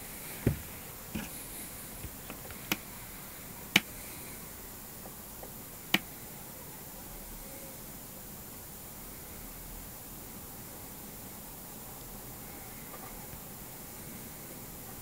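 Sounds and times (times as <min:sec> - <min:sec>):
faint steady hiss: 0:00.0 - 0:15.0
dull thump: 0:00.4 - 0:01.3.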